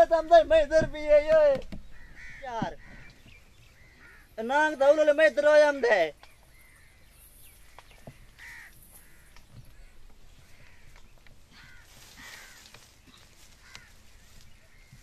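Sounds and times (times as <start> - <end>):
crows cawing: 1.7 - 4.7, 6.4 - 15.0.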